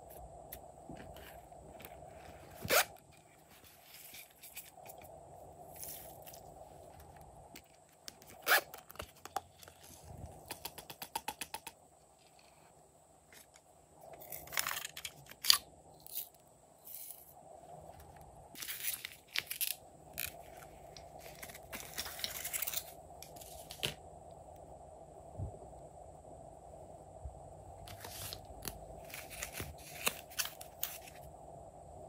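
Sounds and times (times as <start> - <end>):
handling small plastic items: 13.3 - 24.0, 27.8 - 31.3
cardboard package rustling: 18.6 - 24.0, 27.9 - 31.3.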